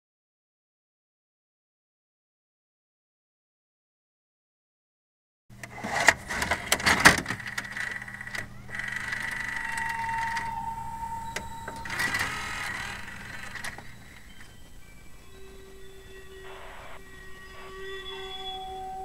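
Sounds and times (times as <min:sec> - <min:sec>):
low electrical hum: 0:05.5 - 0:19.0
tape transport whirring whine: 0:05.5 - 0:19.0
tape mechanism clicks and clunks: 0:05.6 - 0:10.6, 0:11.3 - 0:14.7.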